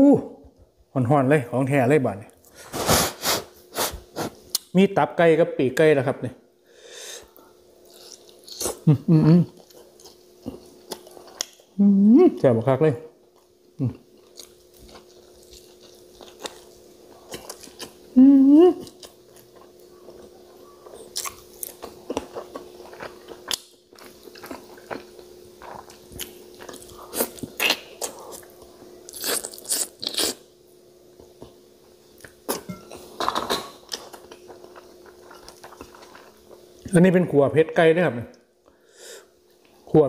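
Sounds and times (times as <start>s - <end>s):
person chewing and crunching: 7.3s - 11.8s, 13.3s - 18.2s, 18.8s - 30.4s, 32.2s - 36.8s
person humming: 8.8s - 9.6s, 11.8s - 12.4s, 18.2s - 18.9s.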